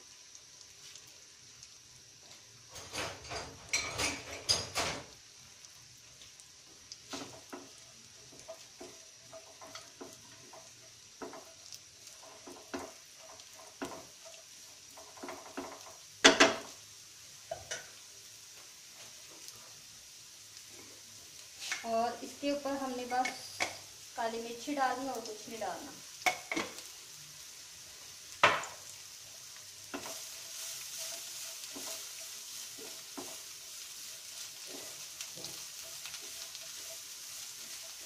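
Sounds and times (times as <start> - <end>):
faint sizzle of frying: 0.0 - 38.0
utensil scraping and knocking pan: 29.9 - 33.5.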